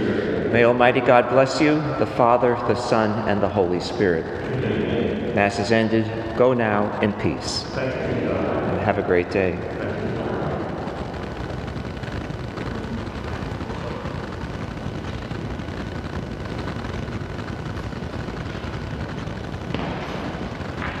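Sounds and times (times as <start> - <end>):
low rumbling background noise: 0.0 - 21.0.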